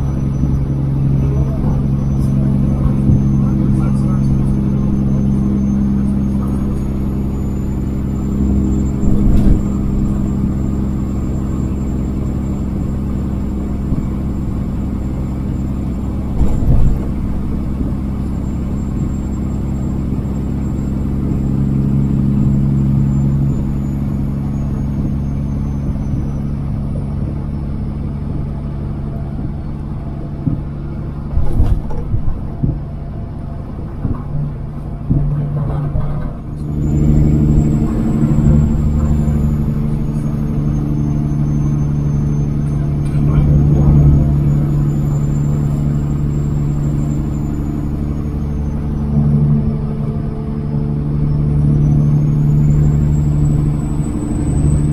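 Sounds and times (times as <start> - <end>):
faint high whine: 0.0 - 31.8, 36.4 - 54.9
truck diesel engine running: 0.0 - 54.9
brief thumps: 31.3 - 32.9.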